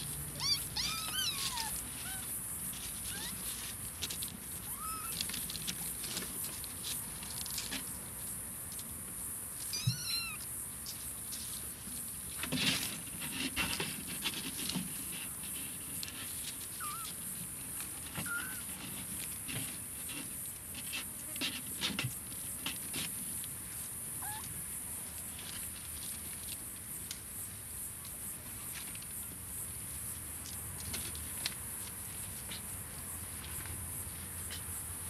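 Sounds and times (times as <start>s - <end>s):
kittens rustling in dry leaves: 0.0s - 21.0s, 21.6s - 34.6s
kittens high-pitched calls: 0.3s - 2.3s, 2.9s - 3.6s, 4.6s - 5.3s, 9.6s - 10.5s, 16.7s - 17.2s, 18.2s - 18.7s, 24.2s - 24.5s.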